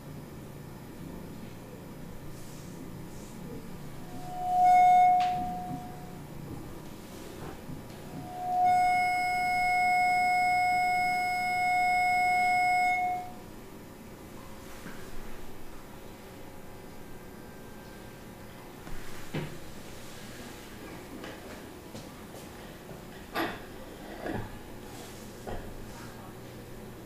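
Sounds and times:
held electronic tones: 0:04.0 - 0:06.2, 0:08.2 - 0:13.4.

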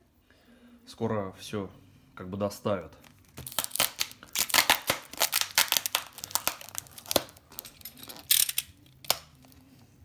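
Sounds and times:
wrapping paper crinkling and tearing: 0:03.0 - 0:09.7.

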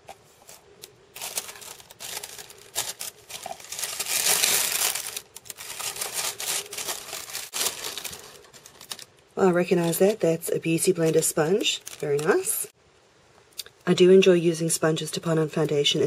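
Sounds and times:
tissue paper rustling and crinkling: 0:00.3 - 0:12.7.

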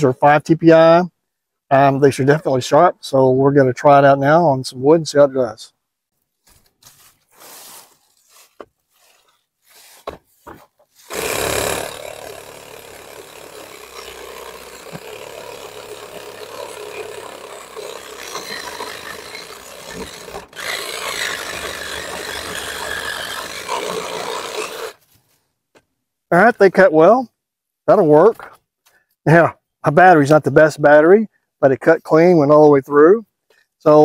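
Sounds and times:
reciprocating saw cutting branch: 0:09.7 - 0:25.1.

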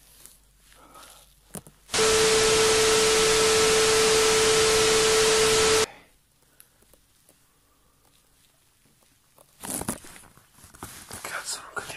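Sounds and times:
tv static hiss: 0:01.9 - 0:05.9
steady test tone: 0:02.0 - 0:05.9.

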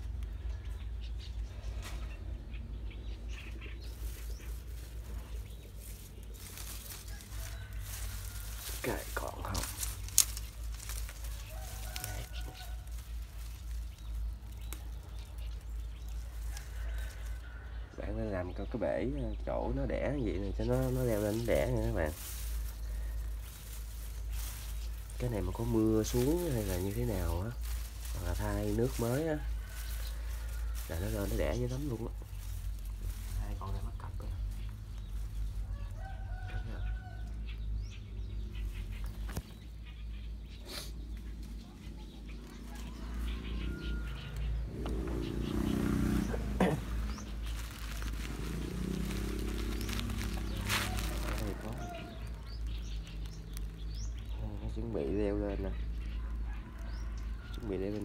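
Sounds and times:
low rumble on microphone: 0:00.0 - 0:40.2, 0:41.0 - 0:58.0
leaves and stems rustling: 0:00.0 - 0:58.0.

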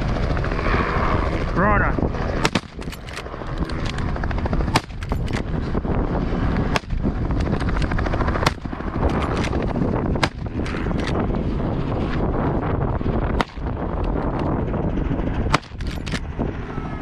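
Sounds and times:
low rumble: 0:00.0 - 0:17.0
rifle shots: 0:02.4 - 0:03.2, 0:04.7 - 0:05.5, 0:06.7 - 0:07.0, 0:07.7 - 0:09.6, 0:10.2 - 0:11.2, 0:13.3 - 0:13.7, 0:15.5 - 0:16.2.

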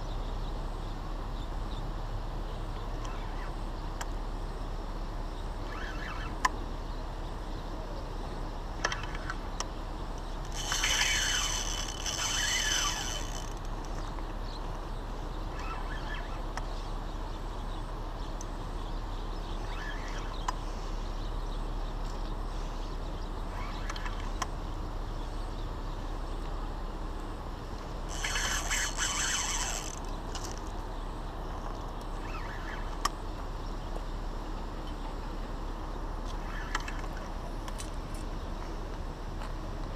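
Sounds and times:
steady background hiss: 0:00.0 - 0:39.9
fishing reel drag buzzing: 0:05.6 - 0:06.5, 0:10.3 - 0:14.1, 0:15.5 - 0:16.5, 0:19.6 - 0:20.4, 0:23.5 - 0:24.4, 0:27.9 - 0:30.8, 0:32.2 - 0:33.0.

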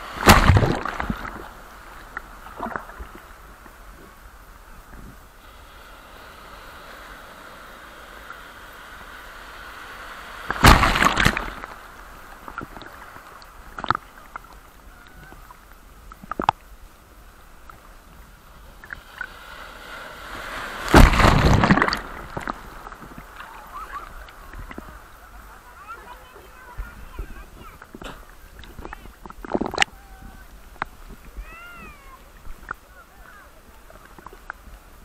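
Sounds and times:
short sharp splashes: 0:00.0 - 0:01.5, 0:10.5 - 0:13.0, 0:18.8 - 0:24.9
ocean waves crashing: 0:00.0 - 0:16.1, 0:16.7 - 0:35.0
wash of sea: 0:00.0 - 0:35.0.

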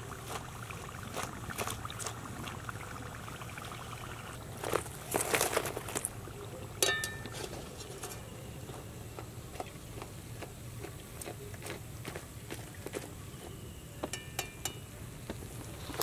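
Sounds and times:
low steady hum: 0:00.0 - 0:16.0
metal utensil clink: 0:06.8 - 0:08.3, 0:14.1 - 0:14.9.

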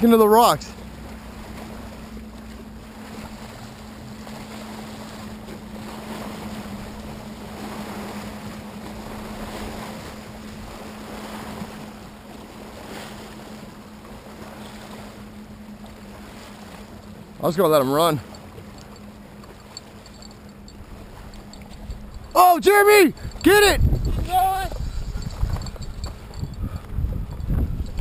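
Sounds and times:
small waves lapping on rocks: 0:00.0 - 0:27.6
steady low hum: 0:13.4 - 0:22.4, 0:23.1 - 0:28.0
wind on microphone: 0:18.3 - 0:28.0.

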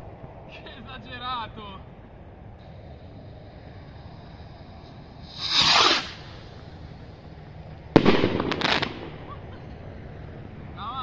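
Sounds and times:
rocket whoosh: 0:02.6 - 0:09.6
firework reports: 0:02.6 - 0:10.0
firework bang: 0:05.2 - 0:06.6, 0:07.9 - 0:09.7.

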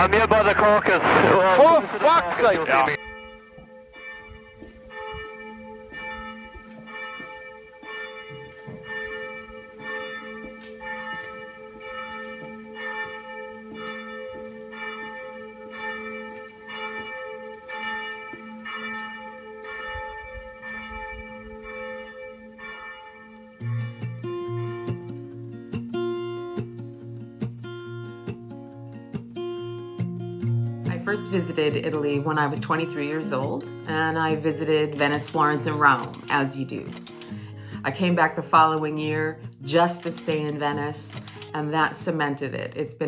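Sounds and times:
church bell tolling: 0:02.1 - 0:25.4.

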